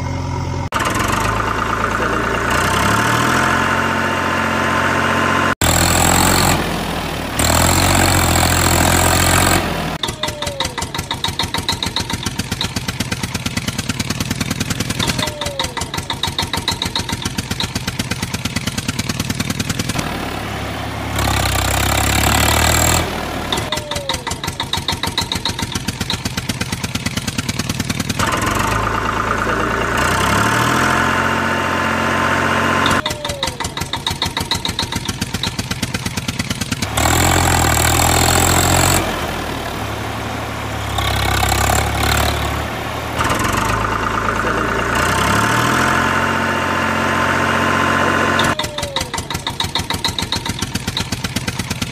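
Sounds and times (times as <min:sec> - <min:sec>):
engine puttering: 0:00.0 - 0:51.9.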